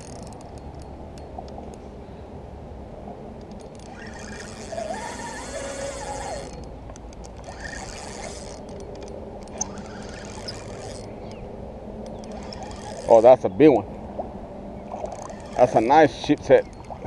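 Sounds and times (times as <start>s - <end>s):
fishing reel gears whirring: 0.0s - 0.9s, 3.5s - 11.4s, 12.0s - 13.4s, 14.9s - 17.0s
light clicks: 3.4s - 4.7s, 6.4s - 11.4s.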